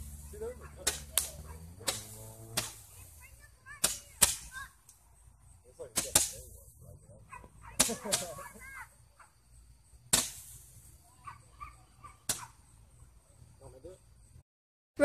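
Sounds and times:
fireworks cracking and banging: 0:00.0 - 0:05.0, 0:05.8 - 0:06.7, 0:07.4 - 0:09.3, 0:10.0 - 0:11.5, 0:12.2 - 0:12.7.

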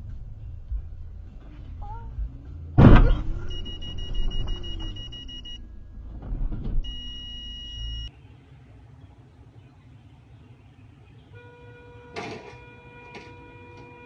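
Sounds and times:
low vehicle rumble: 0:00.0 - 0:08.1
loud bang: 0:02.8 - 0:05.4.

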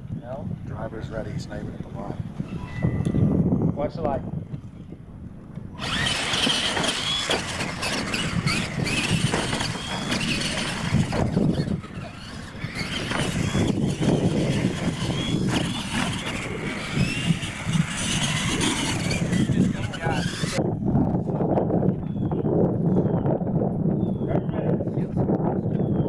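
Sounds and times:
electric motors whining: 0:05.4 - 0:20.6
tyres on dirt: 0:05.5 - 0:20.6.

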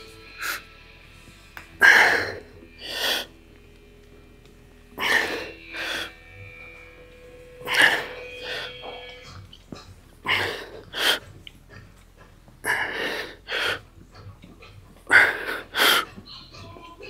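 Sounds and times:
person breathing hard: 0:00.1 - 0:03.5, 0:04.9 - 0:06.3, 0:07.6 - 0:09.0, 0:09.8 - 0:11.4, 0:12.6 - 0:14.0, 0:15.0 - 0:16.2.

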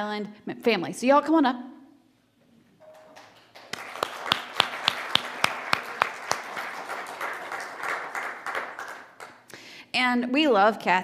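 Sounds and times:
congregation applauding: 0:02.9 - 0:09.5
loud close hand claps: 0:03.0 - 0:09.5.

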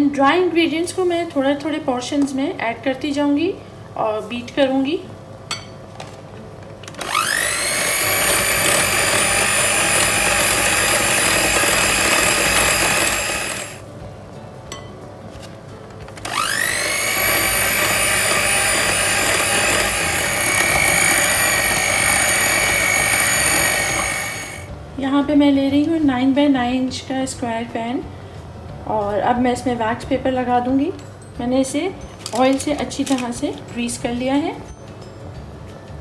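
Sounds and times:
electric hand mixer whine: 0:07.0 - 0:13.8, 0:16.2 - 0:24.7.

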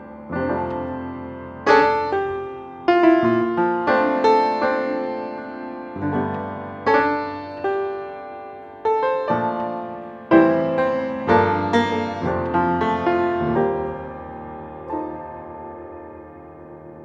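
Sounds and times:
slow solo piano chords: 0:00.0 - 0:17.0.

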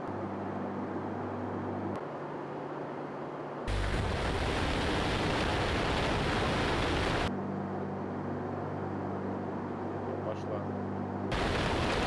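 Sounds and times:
aircraft engine drone: 0:00.0 - 0:12.0
rushing airflow roar: 0:03.7 - 0:07.3, 0:11.3 - 0:12.0.

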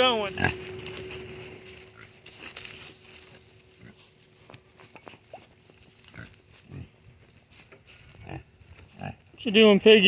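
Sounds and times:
rustling in dry leaves: 0:00.0 - 0:09.3
pig grunting: 0:00.2 - 0:00.9.

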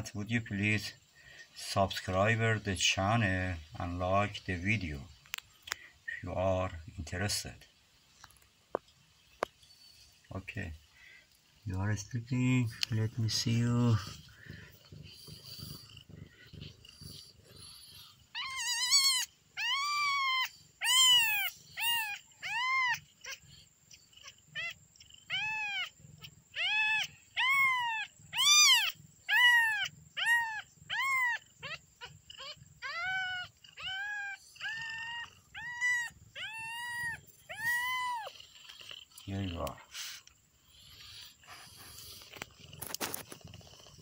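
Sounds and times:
kitten meowing: 0:14.9 - 0:23.4, 0:24.6 - 0:25.9, 0:26.6 - 0:38.4.

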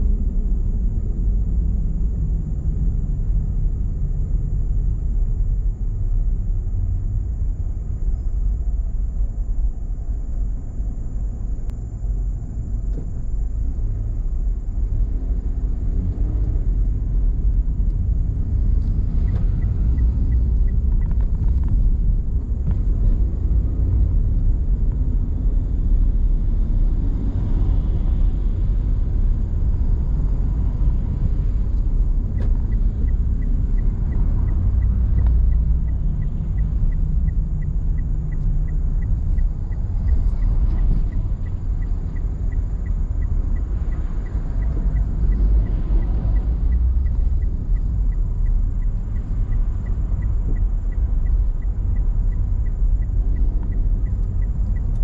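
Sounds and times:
car road and tyre noise: 0:00.0 - 0:55.0
faint ticks: 0:17.5 - 0:23.0, 0:31.2 - 0:55.0.

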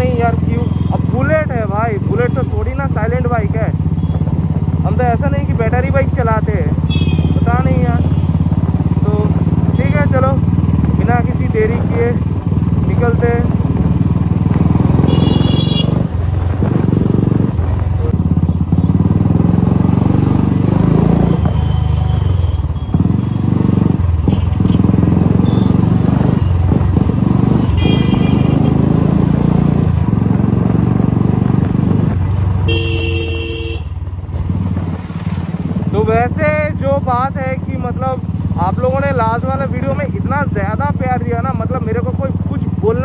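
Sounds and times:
motorcycle exhaust note: 0:06.4 - 0:35.0
horn toots: 0:06.8 - 0:08.4, 0:15.0 - 0:16.1, 0:27.6 - 0:28.8, 0:32.6 - 0:34.0
long horn honk: 0:06.9 - 0:07.4, 0:15.0 - 0:16.0, 0:27.8 - 0:28.7, 0:32.7 - 0:33.9.

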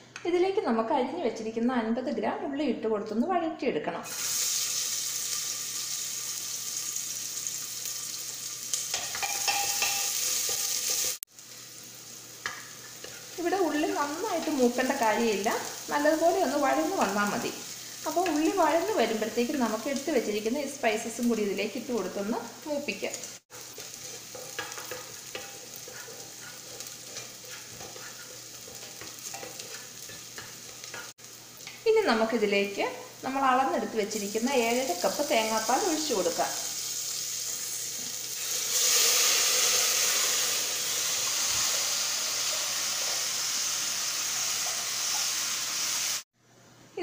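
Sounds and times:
shallots sizzling in hot fat: 0:04.0 - 0:46.3
spoon scraping and clinking: 0:08.9 - 0:11.2, 0:23.6 - 0:31.1.

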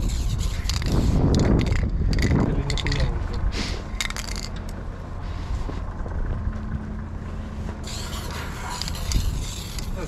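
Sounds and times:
spray paint can hissing: 0:00.0 - 0:01.8, 0:07.8 - 0:10.0
steady low rumble: 0:00.0 - 0:10.0.

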